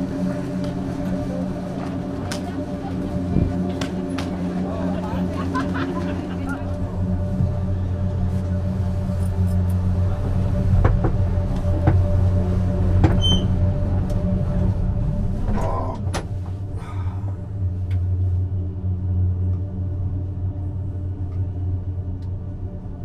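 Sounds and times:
low machinery hum: 0:00.0 - 0:23.0
short high squeak: 0:13.2 - 0:13.5.

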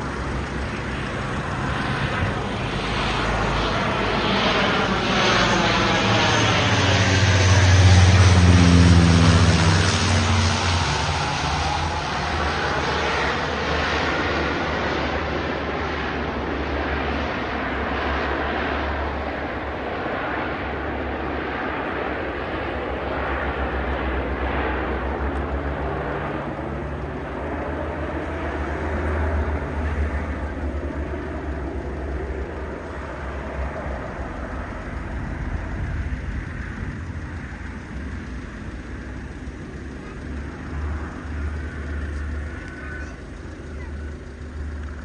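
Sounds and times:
propeller plane passing overhead: 0:00.0 - 0:45.0.

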